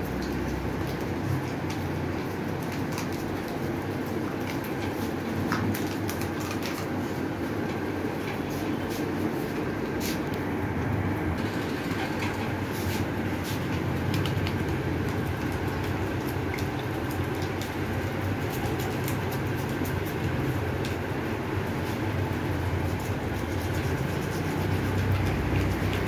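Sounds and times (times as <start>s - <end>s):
machine humming and rumbling: 6.9s - 26.0s
light scratchy ticks: 22.9s - 26.0s.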